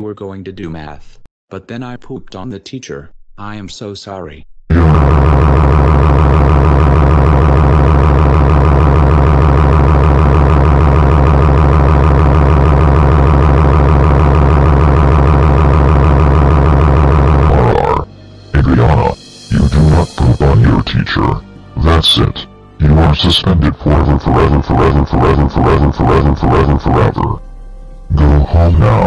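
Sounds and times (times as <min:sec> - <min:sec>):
distorted buzzing drone: 0:04.7 - 0:20.2, 0:24.0 - 0:27.4.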